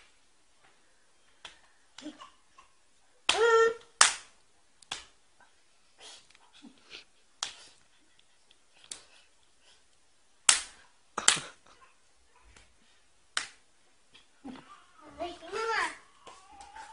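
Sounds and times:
slaps to the face: 1.4s - 2.2s, 3.3s - 5.2s, 7.4s - 7.7s, 10.5s - 11.6s, 13.4s - 13.6s.

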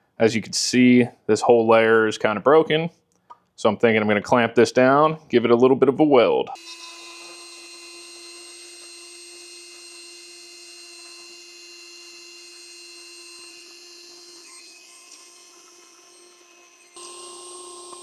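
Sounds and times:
rotary tool whining: 6.6s - 18.0s.

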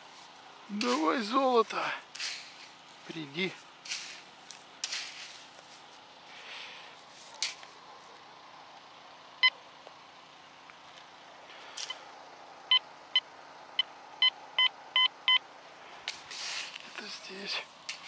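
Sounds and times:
metal detector beeps: 13.8s - 15.4s.

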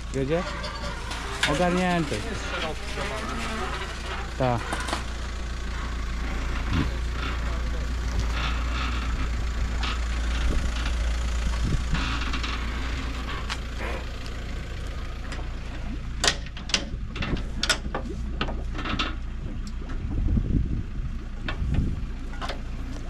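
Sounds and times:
engine idling: 0.0s - 23.0s
sharp knocks and clanks: 0.1s - 5.2s, 16.2s - 19.2s.

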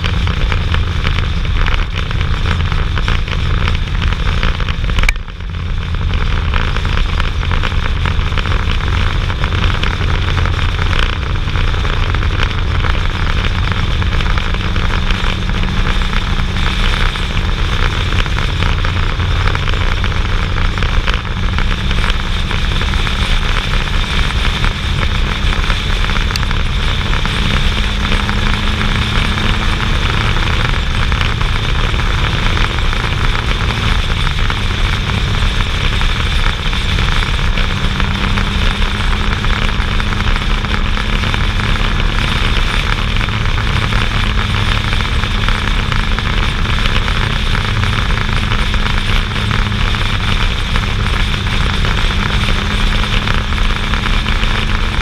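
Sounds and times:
motorcycle engine running: 0.0s - 55.0s
wind rushing on microphone: 0.0s - 55.0s.

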